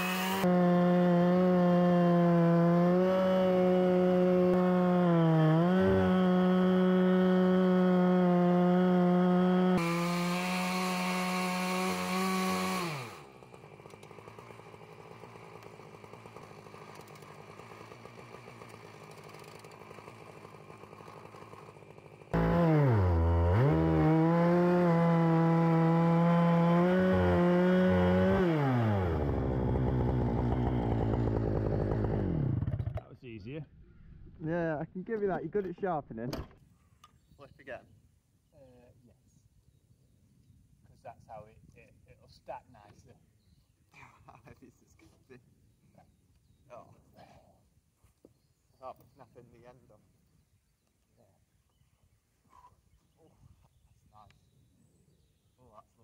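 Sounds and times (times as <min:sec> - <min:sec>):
chainsaw cutting log at full throttle: 0:00.0 - 0:33.0
chainsaw idling: 0:00.0 - 0:33.0.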